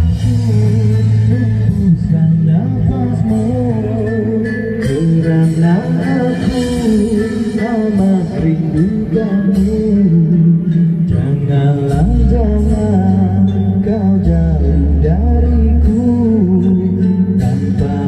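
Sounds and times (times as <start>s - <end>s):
backing music with bass line: 0.0s - 18.0s
person singing into a microphone: 0.0s - 18.0s.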